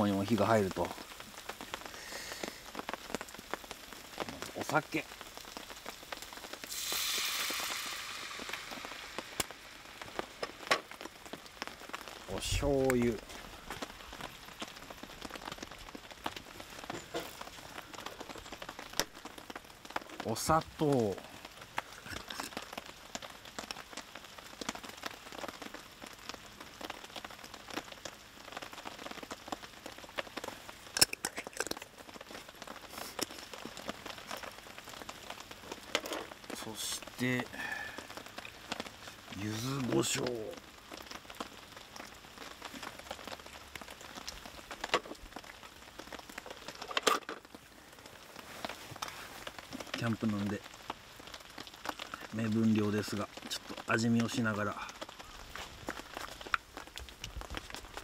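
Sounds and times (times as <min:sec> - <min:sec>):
liquid sizzling in hot pan: 0:00.0 - 0:50.0
raindrops ticking: 0:00.0 - 0:58.0
food sizzling in a skillet: 0:00.7 - 0:12.3.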